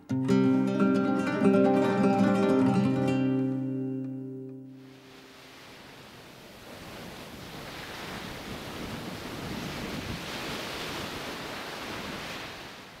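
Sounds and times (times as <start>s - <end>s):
surf of small waves: 4.7s - 13.0s.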